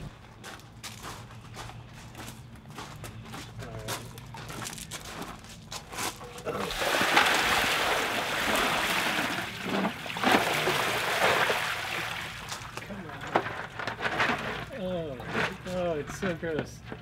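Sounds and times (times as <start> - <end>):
footsteps on gravel: 0.0 - 6.4
water gushing onto gravel: 6.5 - 12.8.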